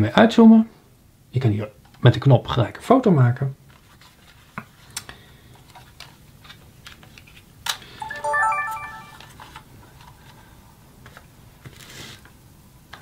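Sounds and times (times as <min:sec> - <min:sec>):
electronic power-on chime: 0:08.0 - 0:09.3.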